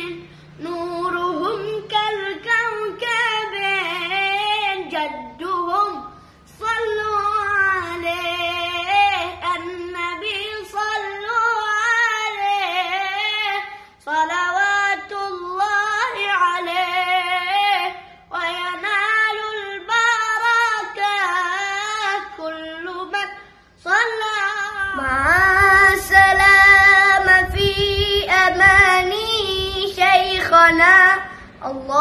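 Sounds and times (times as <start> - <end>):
boy singing unaccompanied: 0.0 - 32.0.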